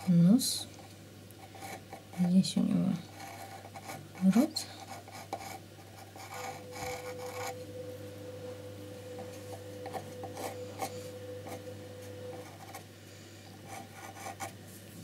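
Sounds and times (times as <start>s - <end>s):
pencil scratching on wood: 1.4s - 2.4s, 3.1s - 7.6s, 9.2s - 12.9s, 13.6s - 14.6s
faint steady tone: 6.2s - 13.5s.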